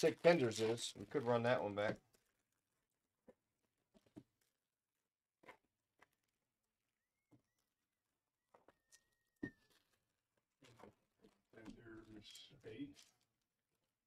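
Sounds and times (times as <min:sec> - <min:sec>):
card packs tapping and rustling: 0:00.0 - 0:02.5, 0:09.4 - 0:13.4.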